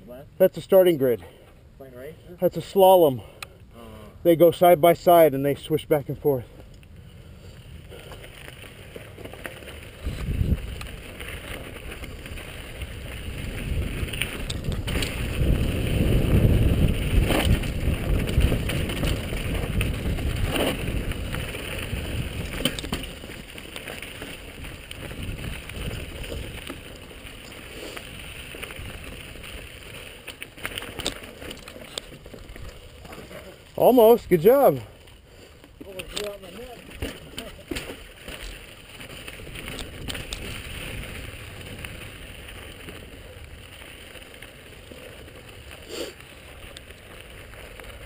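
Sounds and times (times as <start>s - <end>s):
bike tyres rumbling on gravel: 4.3s - 48.0s
bike knocking and rattling: 7.4s - 48.0s
wind buffeting microphone: 9.9s - 11.2s, 11.8s - 23.0s, 24.4s - 26.8s.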